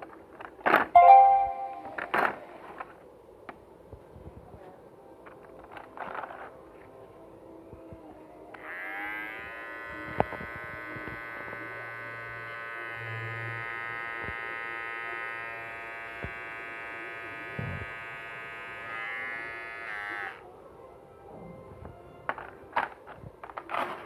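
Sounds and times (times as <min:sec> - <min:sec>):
hair clipper buzzing: 0:08.6 - 0:20.4.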